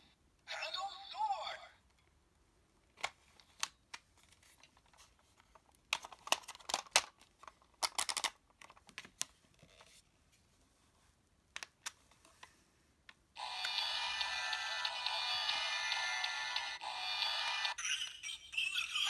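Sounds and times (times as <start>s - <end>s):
plastic toy parts clicking: 5.9s - 8.9s.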